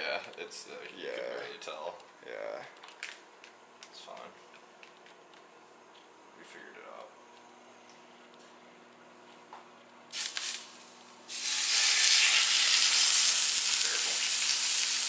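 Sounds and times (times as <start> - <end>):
meat sizzling in skillet: 10.1 - 15.0.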